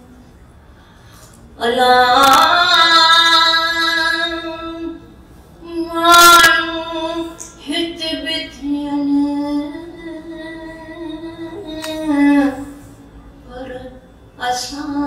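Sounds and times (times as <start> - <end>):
elderly woman singing: 1.6 - 5.0, 5.6 - 12.8.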